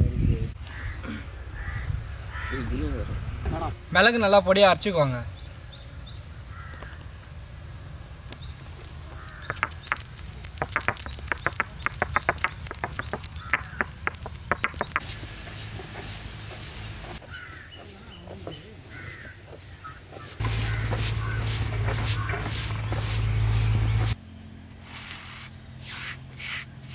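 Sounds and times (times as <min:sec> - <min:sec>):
peppercorns cracking under stone roller: 0:08.8 - 0:15.1.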